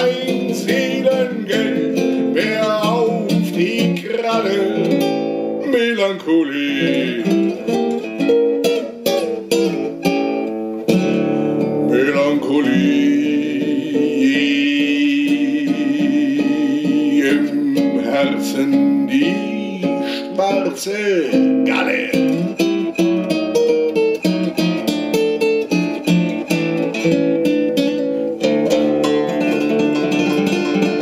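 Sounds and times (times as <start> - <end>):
man singing: 0.0 - 8.0, 11.8 - 23.1
acoustic guitar: 0.0 - 31.0.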